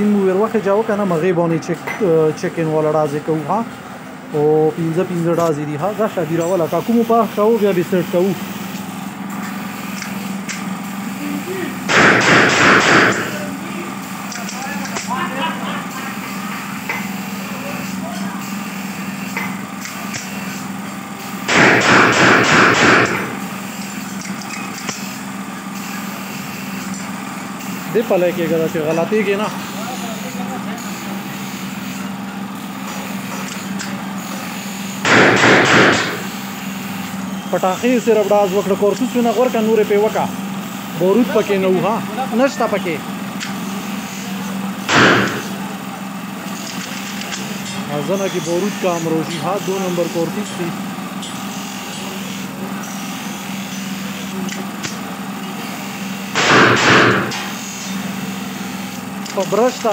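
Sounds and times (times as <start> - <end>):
steady engine hum: 0.0 - 58.3
steady low hum: 2.4 - 15.6, 21.3 - 24.7, 34.9 - 36.5, 44.8 - 45.8
gunshot: 11.9 - 13.4, 21.5 - 23.3, 35.0 - 36.3, 44.9 - 45.5, 56.4 - 57.5
rifle shots burst: 11.9 - 13.4, 21.5 - 23.4, 35.0 - 36.3, 44.9 - 45.6, 56.4 - 57.5.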